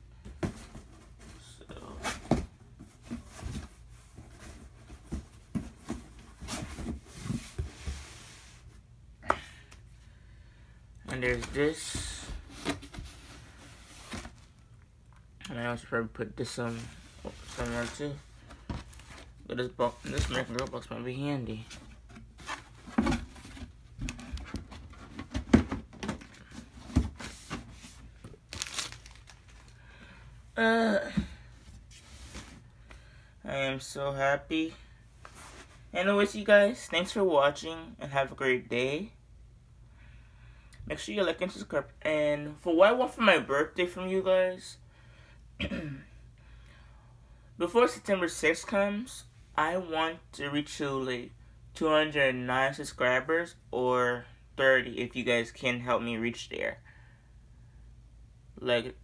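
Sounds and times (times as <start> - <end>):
packaging rustling: 22.4 - 29.8
packaging crinkling: 28.4 - 29.8.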